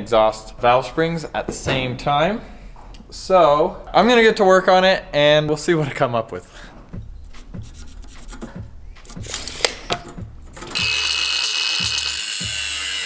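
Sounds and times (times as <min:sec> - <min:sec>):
scratching and tapping on steel: 0:06.9 - 0:13.0
angle grinder cutting steel: 0:10.8 - 0:13.0.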